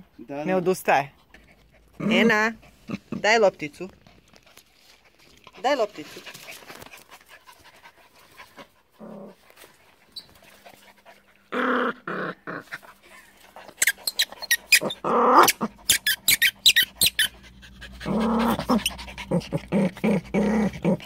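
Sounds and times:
dog growling: 0:08.9 - 0:09.5, 0:11.5 - 0:13.0, 0:13.9 - 0:15.9, 0:17.3 - 0:21.0.

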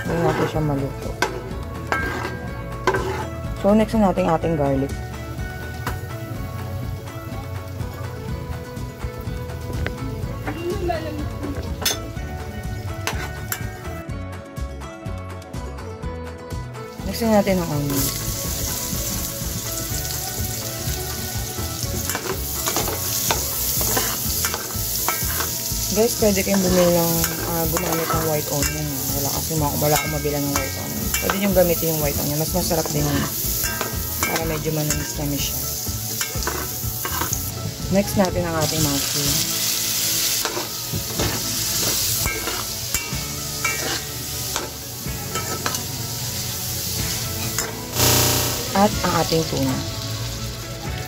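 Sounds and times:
metal utensil scraping pan: 0:00.0 - 0:03.5, 0:13.0 - 0:13.7, 0:22.0 - 0:37.5, 0:40.3 - 0:46.4, 0:47.0 - 0:49.3
onion sizzling in a frying pan: 0:00.0 - 0:14.0, 0:17.0 - 0:51.0.

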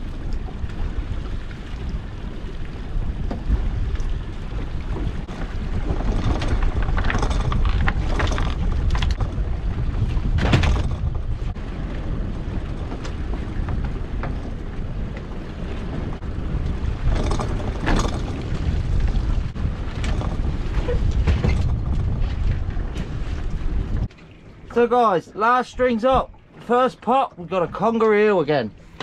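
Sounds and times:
wind rumble on microphone: 0:00.0 - 0:24.7
knocks against the hull: 0:03.0 - 0:04.0, 0:04.6 - 0:11.6, 0:12.8 - 0:15.3, 0:17.0 - 0:23.4.

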